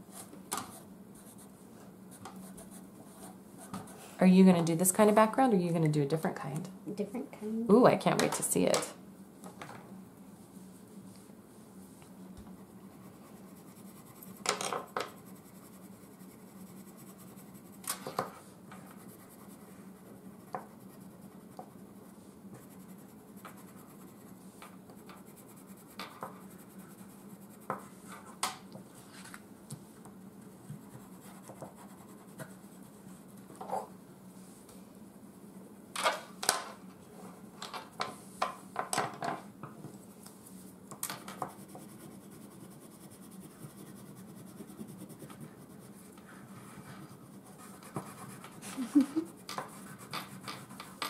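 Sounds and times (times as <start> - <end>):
crayons scratching on paper: 12.5 - 28.4, 41.4 - 51.0.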